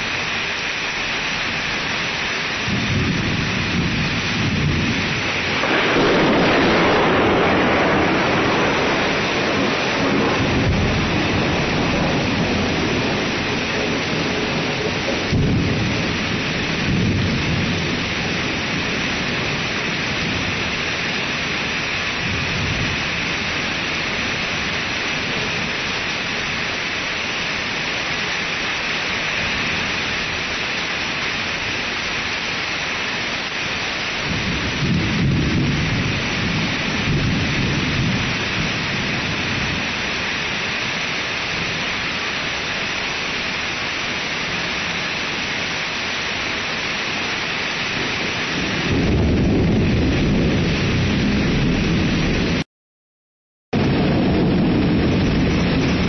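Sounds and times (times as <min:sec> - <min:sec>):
steady rain hiss: 0:00.0 - 0:52.6, 0:53.8 - 0:56.0
thunder rumbling: 0:00.9 - 0:52.6, 0:53.8 - 0:56.0.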